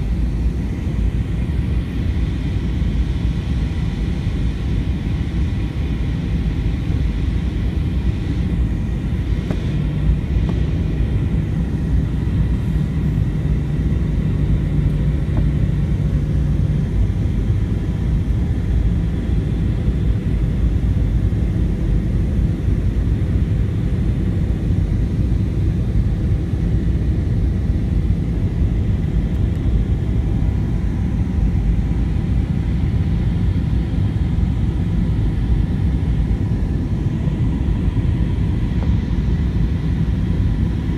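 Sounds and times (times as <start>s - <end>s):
airplane cabin engine rumble: 0.0s - 40.9s
low hum: 6.1s - 21.7s.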